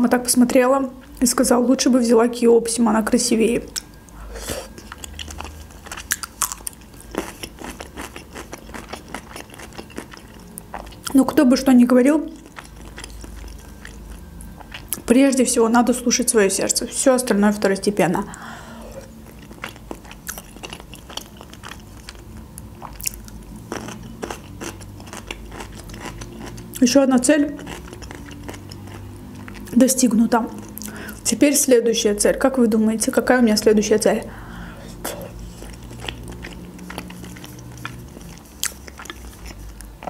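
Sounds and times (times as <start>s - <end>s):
wet crunchy chewing: 3.7s - 11.2s, 12.2s - 15.1s, 19.0s - 29.8s, 35.4s - 40.0s.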